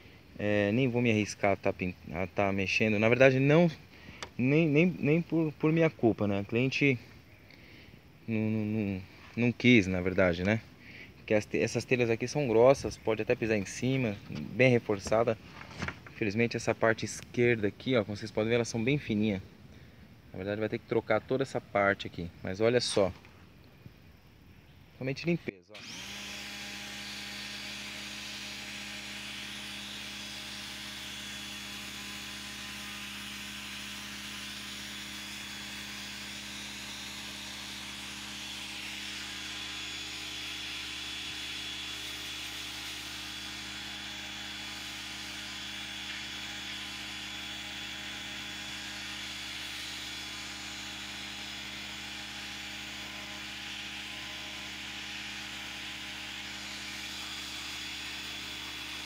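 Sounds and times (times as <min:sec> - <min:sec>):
pressure washer motor hum: 0:25.8 - 0:59.0.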